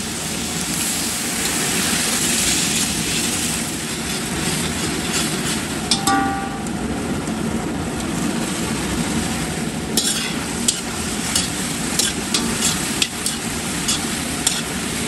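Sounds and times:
food sizzling in sauce: 0.0s - 6.6s, 8.2s - 15.0s
metal spoon scraping pan: 10.0s - 14.7s.

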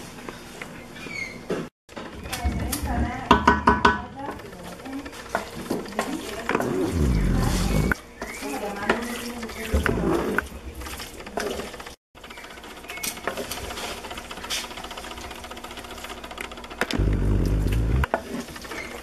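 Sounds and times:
wooden spoon stirring and scraping: 4.6s - 11.6s
low rumble: 17.0s - 18.1s.

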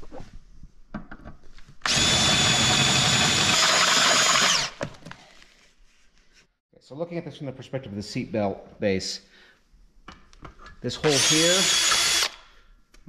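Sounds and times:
cordless drill whining: 1.8s - 4.8s, 11.0s - 12.5s.

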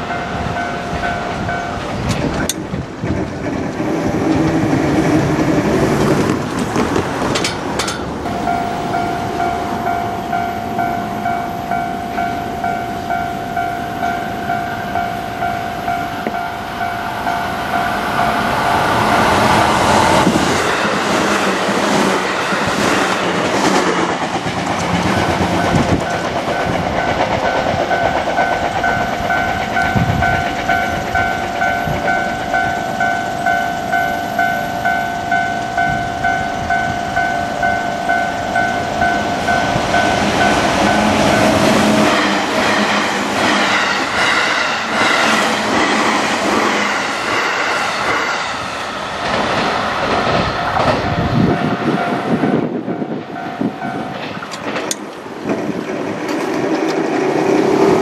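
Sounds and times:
level crossing warning bell: 0.0s - 2.6s, 7.4s - 20.2s, 25.1s - 43.0s, 51.3s - 54.9s
train clattering over rail joints: 0.0s - 58.0s.

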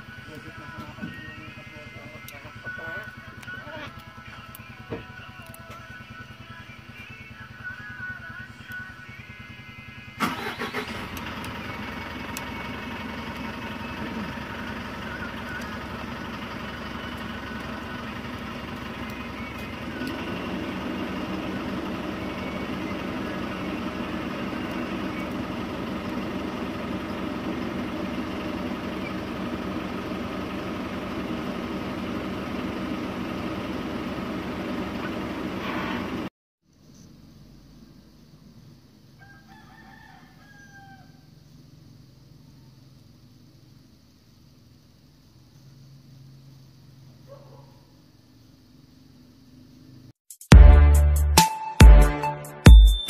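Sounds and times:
engine running: 0.0s - 39.2s.

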